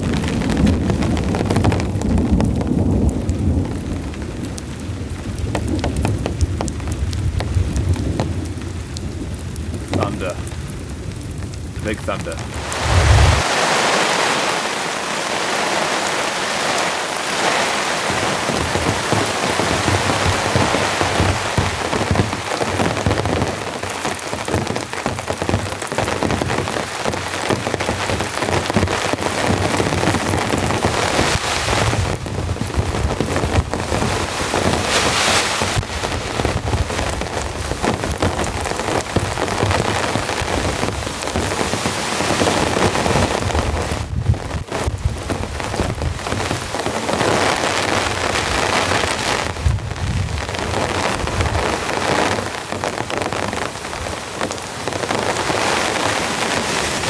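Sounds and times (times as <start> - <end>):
heavy rain on a tarp: 0.0 - 57.0.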